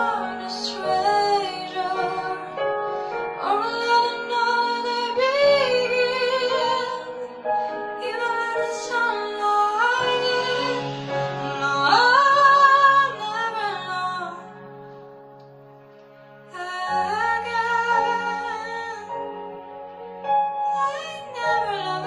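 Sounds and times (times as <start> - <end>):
girl singing pop ballad: 0.0 - 14.4, 20.6 - 22.0
soft instrumental backing: 0.0 - 22.0.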